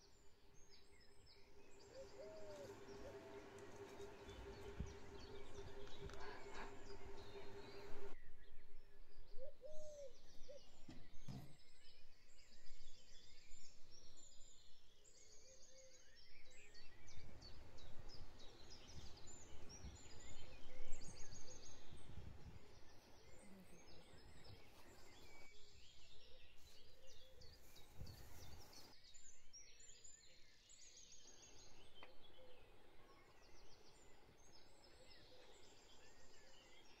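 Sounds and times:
songbirds chirping and trilling: 0.0s - 37.0s.

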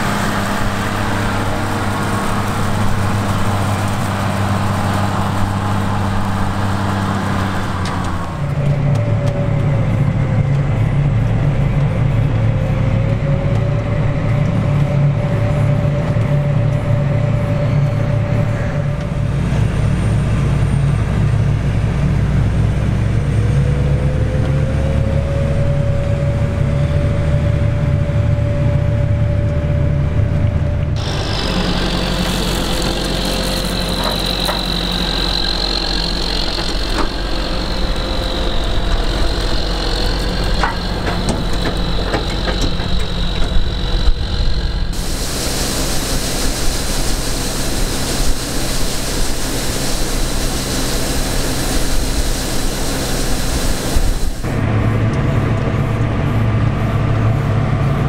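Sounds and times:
tractor diesel engine under load: 0.0s - 58.0s
steady high whine: 30.9s - 58.0s
grain pouring from auger: 31.0s - 44.0s, 44.9s - 54.5s.

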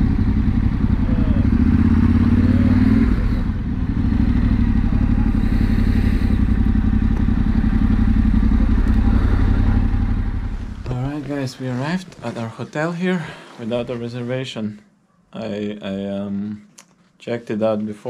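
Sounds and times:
motorcycle engine running: 0.0s - 11.8s.

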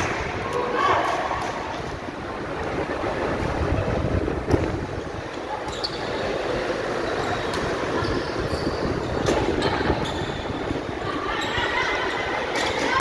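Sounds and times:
gym hall noise: 0.0s - 13.0s
voices: 5.1s - 13.0s
shoe squeaks on court: 5.7s - 6.2s.

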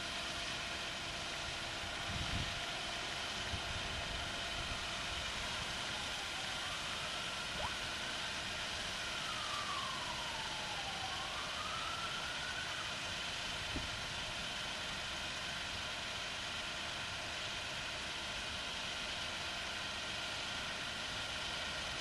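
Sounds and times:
faint wailing siren-like tone: 5.3s - 13.3s.

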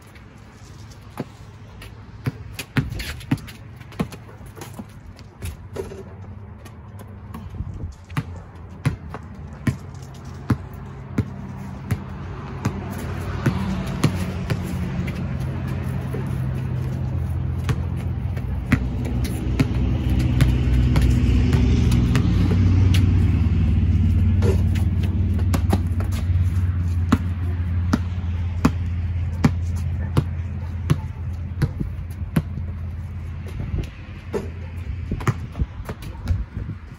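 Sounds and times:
vehicle engine hum: 0.0s - 36.9s
basketball bouncing on concrete: 0.9s - 36.9s.

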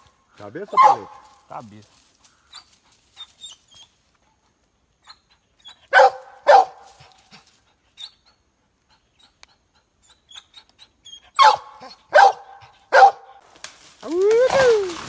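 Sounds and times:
dog barking: 0.7s - 1.2s, 5.9s - 6.9s, 11.4s - 13.4s.

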